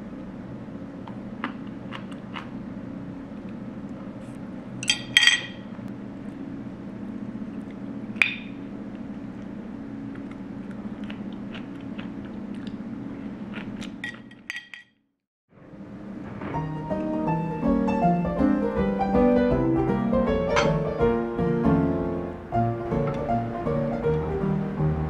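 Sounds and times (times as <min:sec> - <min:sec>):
steady low hum: 0:00.0 - 0:14.8, 0:15.6 - 0:25.0
chopsticks and dishes clinking: 0:04.8 - 0:05.7, 0:14.0 - 0:14.9.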